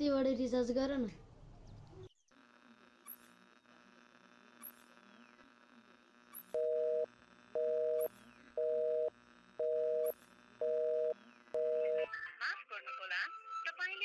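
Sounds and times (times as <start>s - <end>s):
faint electronic hum: 0.0s - 12.5s
telephone busy signal beeps: 6.4s - 12.0s.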